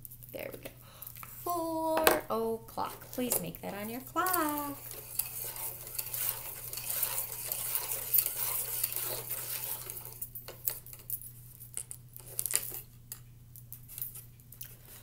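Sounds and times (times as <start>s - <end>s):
scraping and rubbing: 2.8s - 10.3s.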